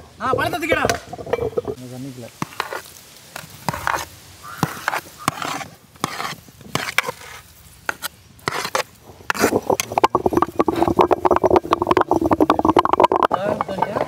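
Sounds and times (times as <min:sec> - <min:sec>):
sharp knocks: 0:00.3 - 0:01.8.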